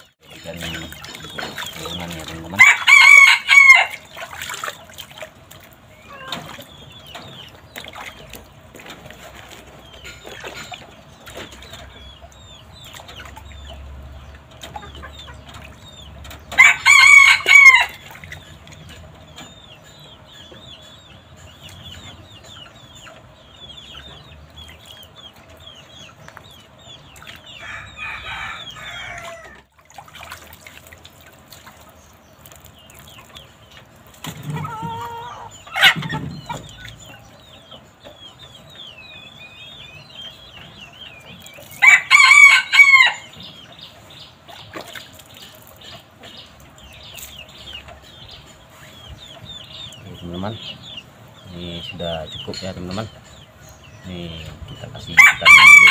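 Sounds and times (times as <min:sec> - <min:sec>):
water splashing in a basin: 0:00.0 - 0:19.5, 0:24.3 - 0:27.6, 0:29.2 - 0:35.3, 0:41.2 - 0:42.5, 0:44.4 - 0:47.9
rooster crowing: 0:02.6 - 0:04.0, 0:16.6 - 0:18.0, 0:27.6 - 0:29.7, 0:41.8 - 0:43.3, 0:55.2 - 0:55.9.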